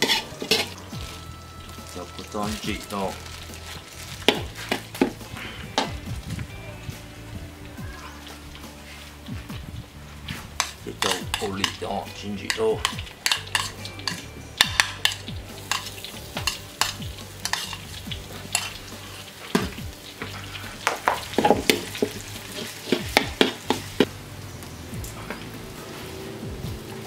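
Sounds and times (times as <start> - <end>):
metal ladle scraping wok: 0.0 - 6.1, 9.9 - 24.1
chili paste sizzling in oil: 0.0 - 27.0.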